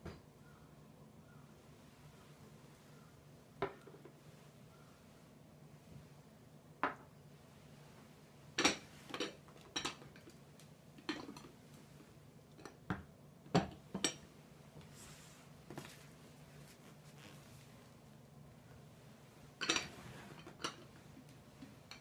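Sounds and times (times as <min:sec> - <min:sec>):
tableware clinking on table: 0:19.6 - 0:20.8.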